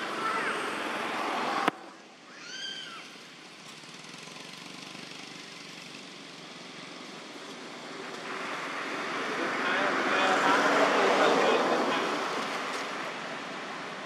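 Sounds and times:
loud noisy background: 0.0 - 14.0
steady outdoor hiss: 0.0 - 14.0
animal call: 2.3 - 3.2.

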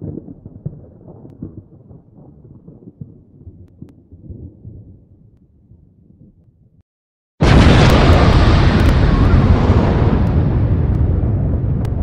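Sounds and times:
low explosion rumble: 7.4 - 12.0
sharp crackles: 7.4 - 12.0.

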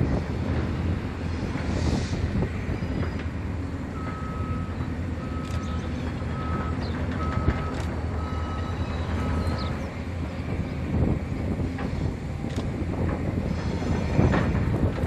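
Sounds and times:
low engine rumble: 0.0 - 15.0
reversing alarm beeping: 3.9 - 9.8.

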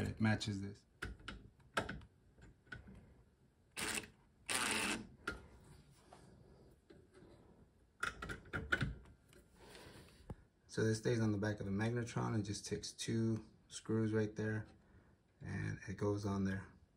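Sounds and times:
power driver driving screw: 3.8 - 5.1.

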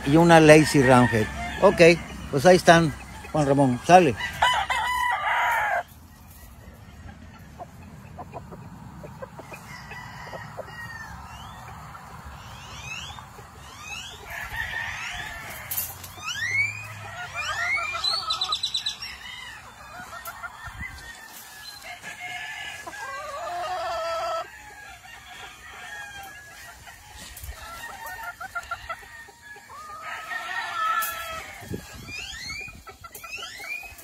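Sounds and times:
hens clucking: 0.0 - 34.0
roosters crowing: 0.0 - 34.0.

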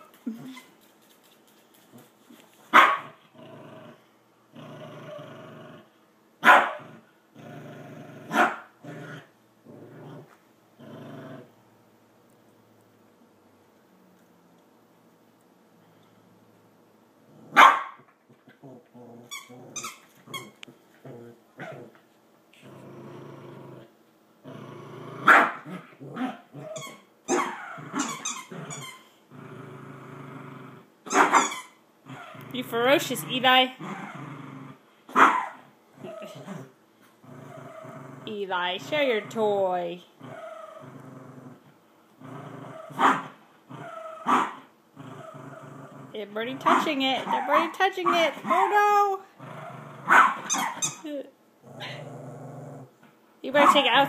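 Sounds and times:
dog barking: 2.7 - 3.1, 6.4 - 6.8, 8.3 - 8.7, 17.6 - 18.0, 25.3 - 25.6, 31.1 - 31.5, 35.1 - 35.6, 44.3 - 44.6, 50.1 - 50.8
dog growling: 3.2 - 6.0, 6.7 - 11.6, 18.3 - 31.3, 32.0 - 34.8, 35.4 - 53.0.

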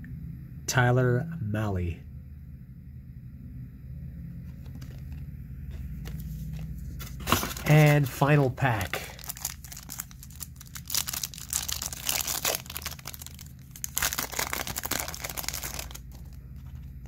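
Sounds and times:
foil wrapper tearing and crinkling: 7.0 - 8.2, 8.8 - 16.8.

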